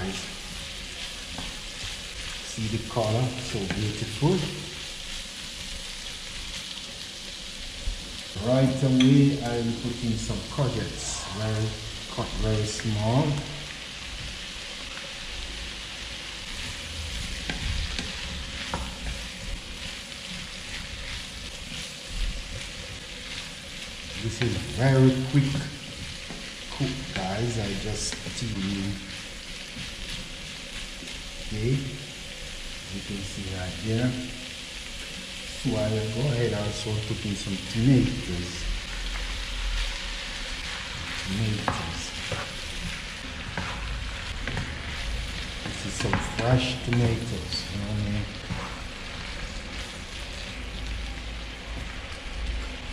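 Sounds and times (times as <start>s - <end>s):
food sizzling in a frying pan: 0.0s - 52.9s
spatula scraping a pan: 40.6s - 50.5s.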